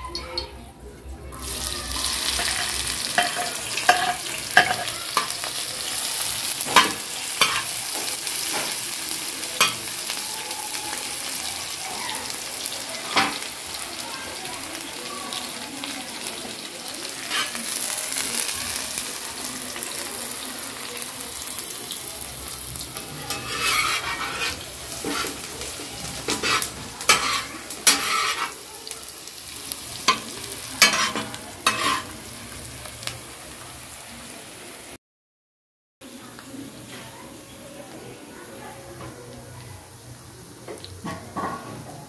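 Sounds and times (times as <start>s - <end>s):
onions sizzling in oil: 1.3s - 35.0s, 36.1s - 42.0s
steel spatula scraping: 2.0s - 5.5s, 6.7s - 7.8s, 17.3s - 17.7s, 23.1s - 25.5s, 26.1s - 28.6s, 30.1s - 32.2s.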